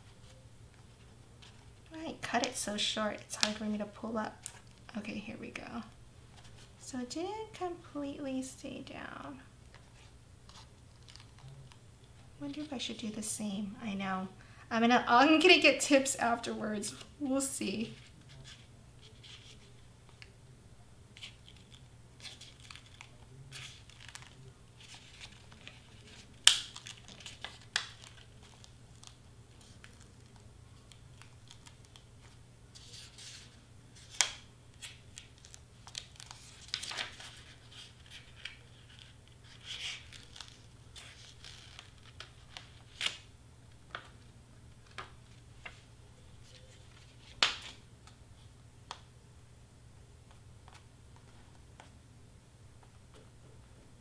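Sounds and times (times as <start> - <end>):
faint low hum: 0.0 - 54.0
hands handling card pieces: 21.2 - 44.2.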